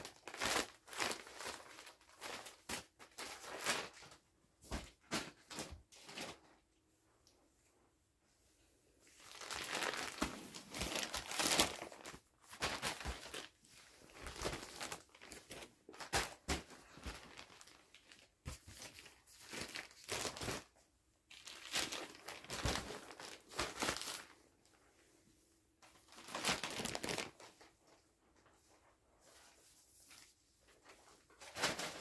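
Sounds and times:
plastic packs crinkling: 0:00.0 - 0:06.6, 0:09.2 - 0:24.4, 0:25.8 - 0:28.1, 0:30.7 - 0:32.0.

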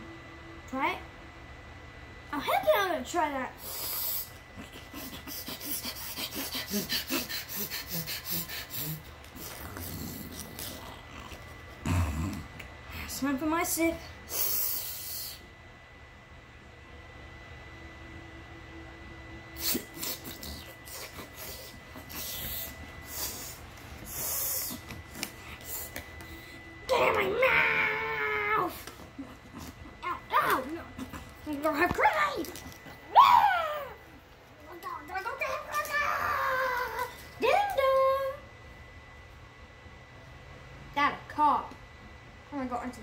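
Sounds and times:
low voiced grunts: 0:11.8 - 0:12.5
mouth slurping and sucking: 0:19.6 - 0:24.8.

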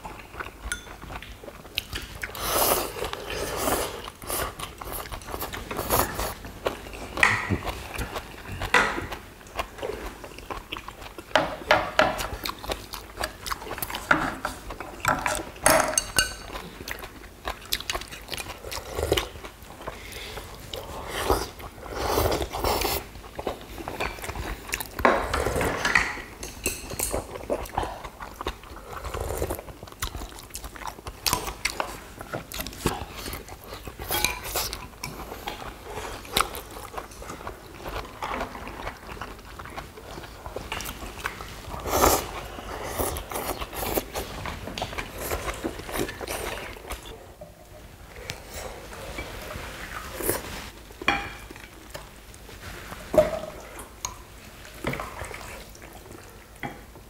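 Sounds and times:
people chewing and biting: 0:00.0 - 0:15.6, 0:16.3 - 0:26.0, 0:26.7 - 0:47.2
slurping noodles and broth: 0:02.2 - 0:06.4, 0:18.5 - 0:23.1, 0:40.0 - 0:47.1.

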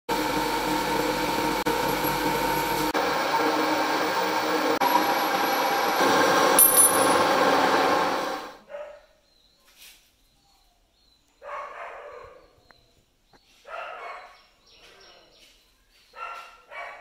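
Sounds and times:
cutting tool turning metal bar: 0:00.1 - 0:08.5
metal lathe whining: 0:00.1 - 0:08.6.

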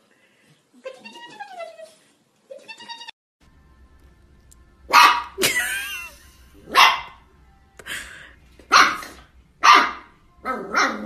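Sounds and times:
puppy barking: 0:04.9 - 0:05.4, 0:06.7 - 0:07.2, 0:08.7 - 0:11.0.

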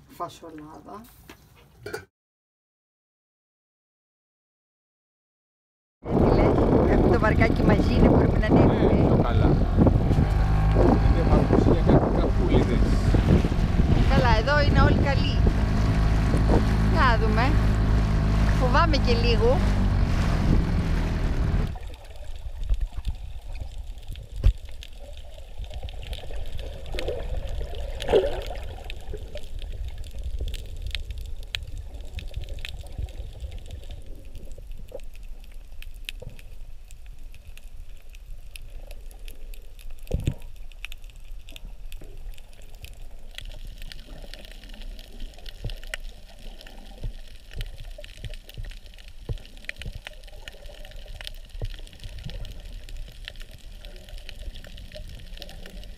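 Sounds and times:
muffled underwater rumble: 0:06.0 - 0:55.9
water gurgling: 0:06.1 - 0:55.9
small scattered clicks and crackles: 0:21.7 - 0:55.9.

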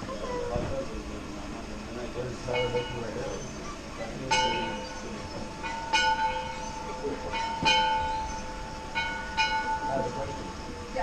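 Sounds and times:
metal clanks with ringing: 0:02.5 - 0:03.5, 0:04.2 - 0:11.0.

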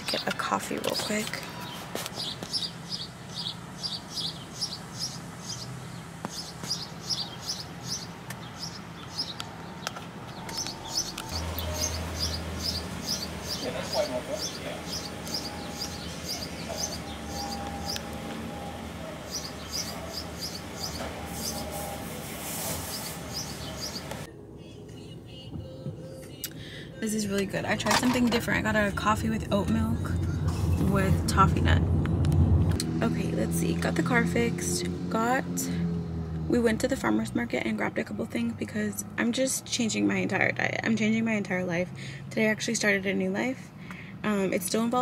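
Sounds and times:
bird chirping: 0:00.9 - 0:24.3.

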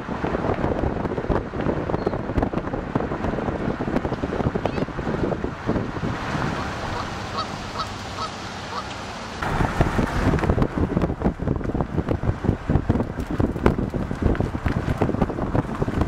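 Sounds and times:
car road noise: 0:00.0 - 0:16.0
wind buffeting microphone: 0:00.0 - 0:16.0
short calls: 0:06.5 - 0:09.0.

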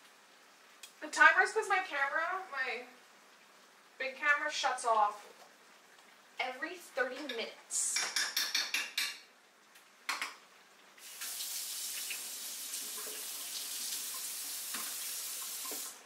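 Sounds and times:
faucet running: 0:11.0 - 0:16.0.

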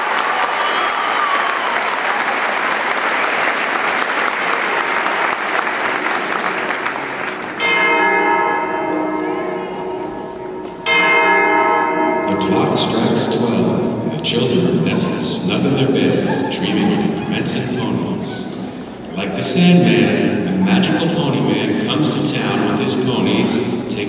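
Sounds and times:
audience applauding: 0:00.0 - 0:07.7
ringing bell-like chord: 0:07.6 - 0:15.2.

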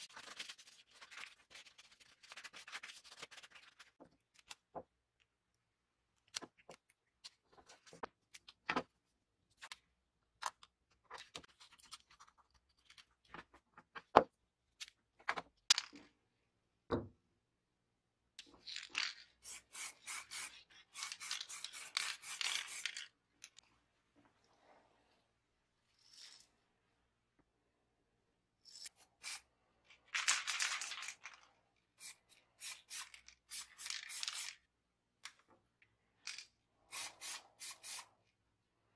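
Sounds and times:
aerosol spray can hissing: 0:19.4 - 0:22.8, 0:36.9 - 0:38.0.

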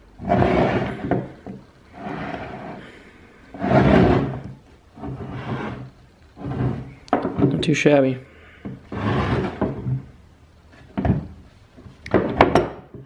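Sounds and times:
metal tools scraping on wood: 0:00.2 - 0:03.0, 0:03.6 - 0:07.6, 0:08.6 - 0:10.1.

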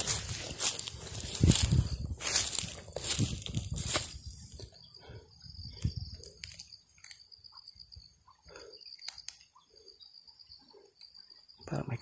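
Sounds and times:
footsteps in dry grass: 0:00.0 - 0:07.3
insects trilling: 0:00.0 - 0:12.0.

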